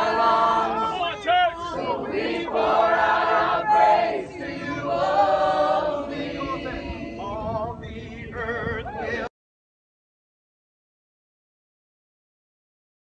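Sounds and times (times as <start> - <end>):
crowd singing together: 0.0 - 9.3.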